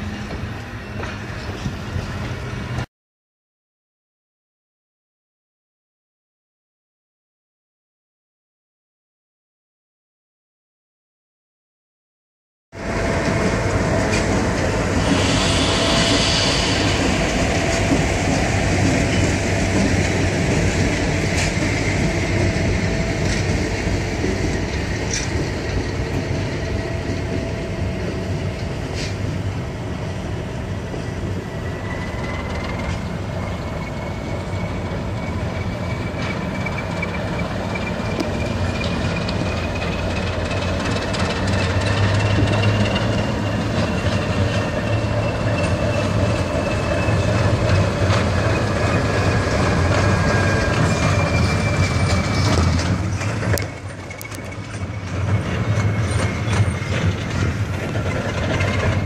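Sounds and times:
diesel locomotive engine rumble: 0:00.0 - 0:02.9, 0:12.8 - 0:59.0
train wheels clicking and knocking: 0:13.1 - 0:30.0, 0:34.2 - 0:59.0
thin wheel squeal: 0:41.4 - 0:57.0.

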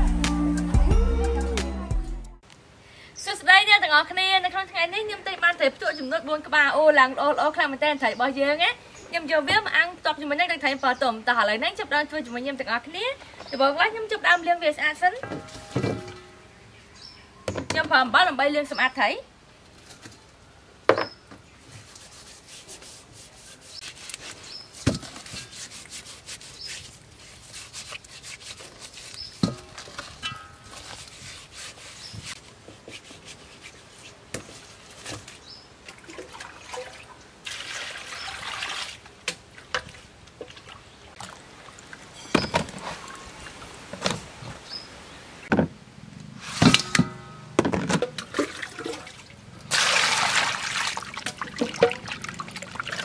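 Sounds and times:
wet rubbing and squelching: 0:21.6 - 0:36.3, 0:48.1 - 0:53.0.

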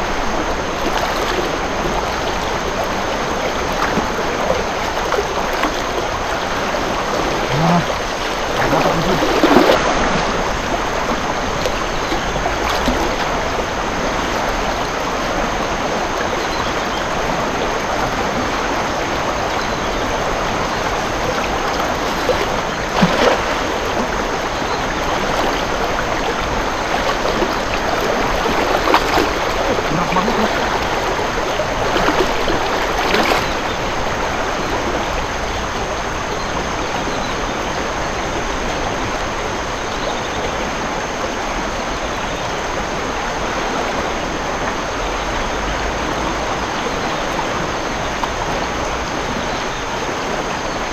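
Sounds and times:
wader splashing through water: 0:00.0 - 0:35.0
river water rushing: 0:00.0 - 0:50.9
cast net splashing: 0:05.0 - 0:10.4, 0:22.0 - 0:24.3, 0:25.0 - 0:33.6.

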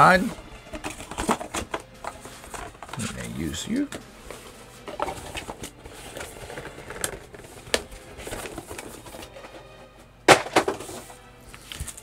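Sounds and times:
cardboard and paper rustling: 0:00.7 - 0:09.7, 0:10.3 - 0:12.0
box knocking on desk: 0:10.3 - 0:11.0.

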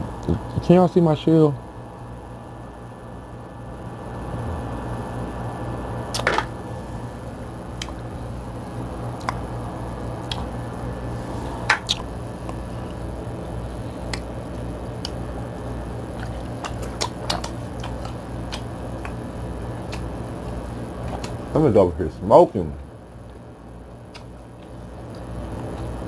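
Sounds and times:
steady low hum: 0:00.0 - 0:26.0
sharp clicks and smacks: 0:07.8 - 0:08.0, 0:09.2 - 0:09.4, 0:10.2 - 0:10.5, 0:11.6 - 0:12.6, 0:14.1 - 0:14.3, 0:16.2 - 0:19.2, 0:19.9 - 0:20.1, 0:21.1 - 0:21.4, 0:24.1 - 0:25.9
wet chewing and squishing: 0:10.2 - 0:10.5, 0:11.7 - 0:13.1, 0:16.1 - 0:19.2, 0:21.0 - 0:21.4, 0:24.1 - 0:25.9.

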